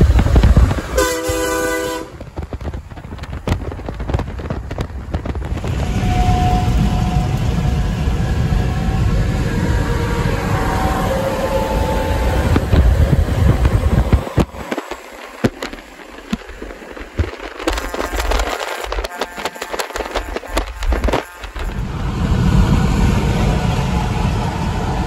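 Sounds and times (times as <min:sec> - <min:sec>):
road and wind noise: 0:00.0 - 0:25.0
truck air horn chord: 0:01.0 - 0:02.1
crackling clicks: 0:12.6 - 0:21.8.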